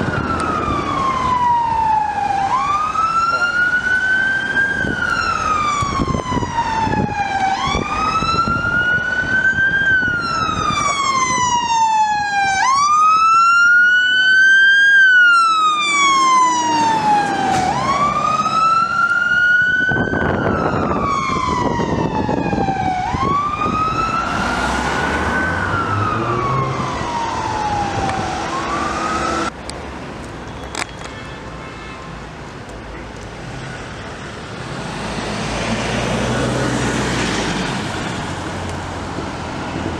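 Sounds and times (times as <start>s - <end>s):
fire engine accelerating: 0.0s - 29.6s, 32.5s - 39.9s
fire engine siren wailing: 0.0s - 29.6s
road traffic: 0.0s - 39.9s.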